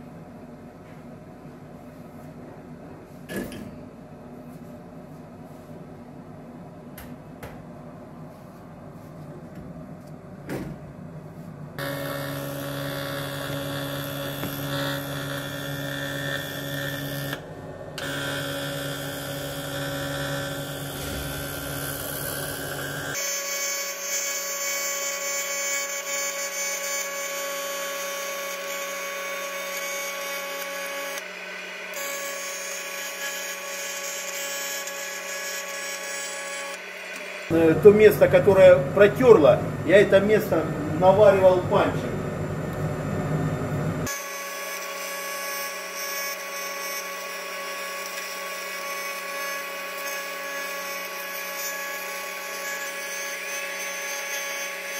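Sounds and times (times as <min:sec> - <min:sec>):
welding arc humming: 0:11.8 - 0:54.9.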